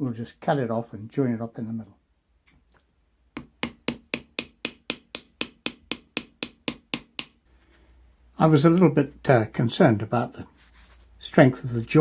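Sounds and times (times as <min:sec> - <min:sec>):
wooden paddle slapping clay pot: 0:03.3 - 0:07.4.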